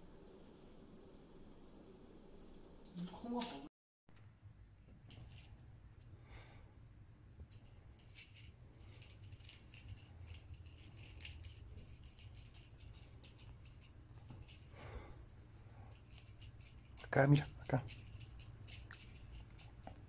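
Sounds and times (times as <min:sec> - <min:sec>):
cat toy rattling: 0:05.0 - 0:05.6, 0:07.5 - 0:14.8, 0:15.8 - 0:20.0.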